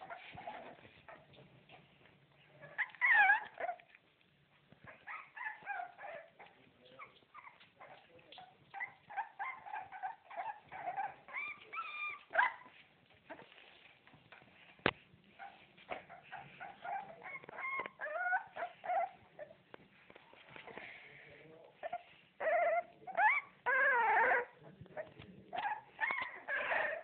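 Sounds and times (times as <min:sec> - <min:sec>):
puppies whimpering and squeaking: 0:00.0 - 0:27.0.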